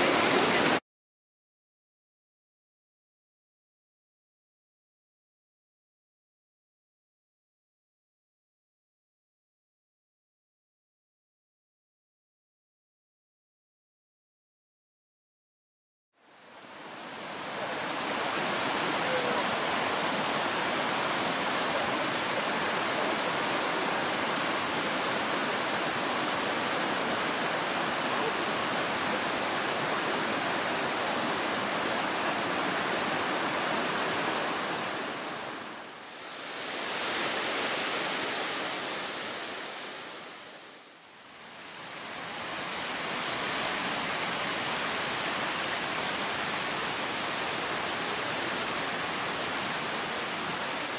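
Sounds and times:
water rushing over waterfall: 0.0s - 0.8s, 16.2s - 50.9s.

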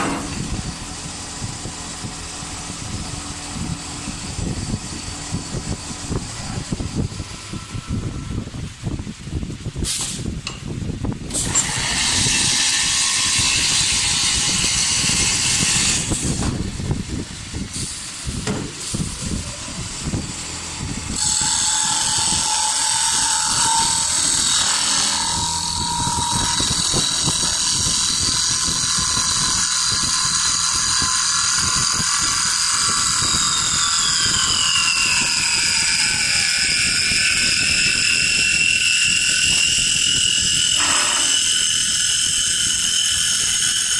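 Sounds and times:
high whine: 0.0s - 11.8s, 12.9s - 43.9s
lathe cutting wood: 11.4s - 16.5s, 19.5s - 43.9s.

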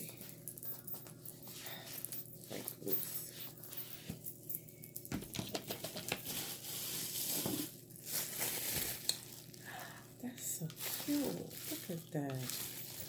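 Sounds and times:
paper wrapping crinkling: 5.5s - 13.0s.

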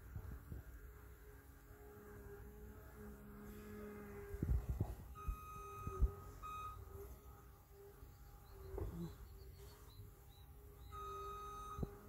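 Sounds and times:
soft high bird chirps: 7.9s - 11.9s.

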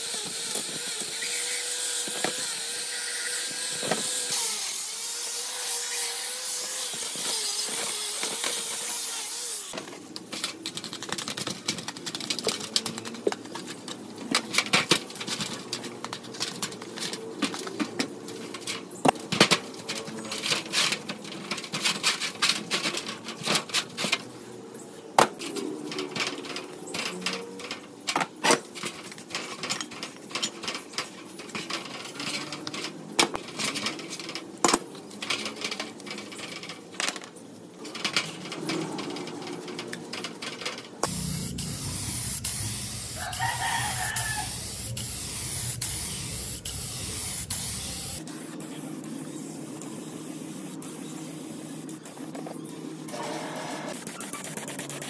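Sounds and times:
paintbrush scrubbing metal parts: 37.8s - 55.0s
paint spray gun hissing: 41.0s - 48.5s, 50.0s - 53.3s
rooster crowing: 43.1s - 44.9s.

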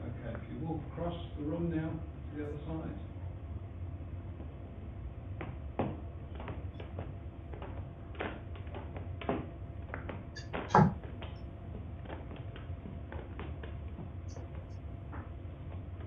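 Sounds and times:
low steady hum: 0.0s - 16.0s
walking frame knocking and scraping: 5.4s - 16.0s
loud thump: 10.7s - 11.0s.

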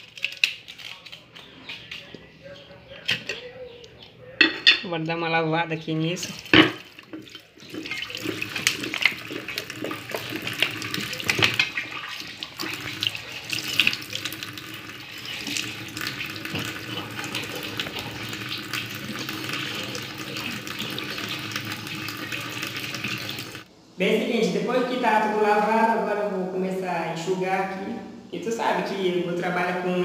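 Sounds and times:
tap water splashing into sink: 6.4s - 23.7s
sponge scrubbing glass jar: 6.8s - 14.4s.

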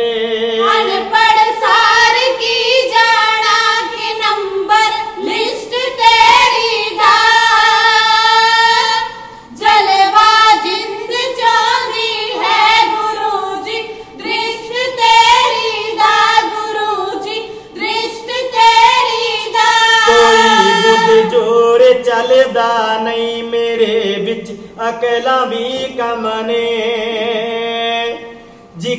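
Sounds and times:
women singing in unison: 0.4s - 21.5s
low male voice: 20.1s - 21.5s.

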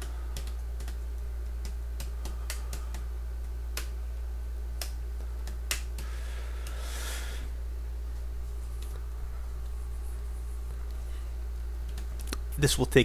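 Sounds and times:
low electrical hum: 0.0s - 13.0s
computer keyboard keystrokes: 0.3s - 3.0s.

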